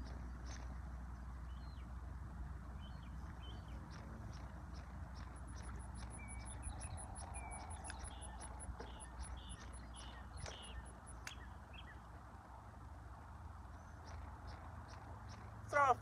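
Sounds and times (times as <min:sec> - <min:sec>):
low outdoor rumble: 0:00.0 - 0:16.0
birds chirping: 0:02.7 - 0:12.2.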